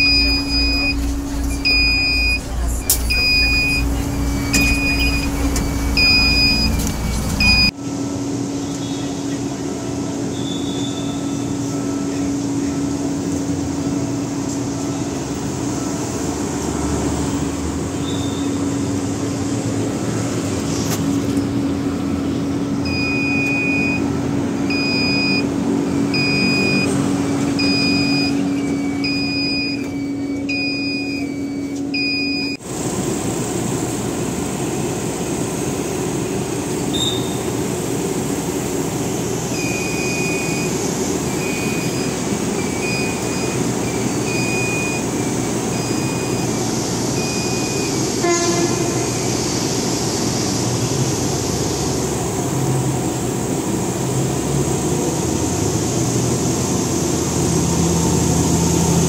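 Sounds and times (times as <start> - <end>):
door warning beeps: 0.0 - 7.7, 22.8 - 32.6, 39.5 - 48.1
train low drone: 0.0 - 59.0.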